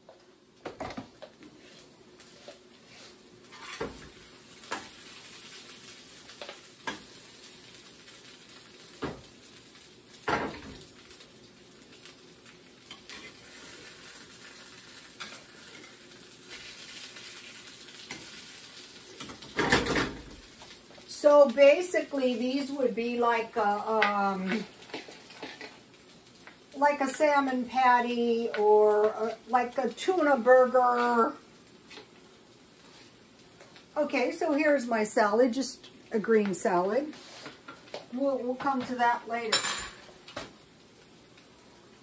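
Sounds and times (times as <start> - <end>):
patties sizzling in frying pan: 0.0 - 42.0
metal spatula scraping pan: 1.6 - 4.1.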